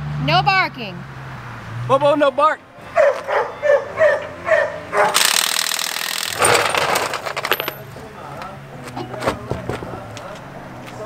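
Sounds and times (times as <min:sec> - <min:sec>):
dog barking: 0:02.9 - 0:05.2
harsh mechanical noise: 0:05.0 - 0:08.6.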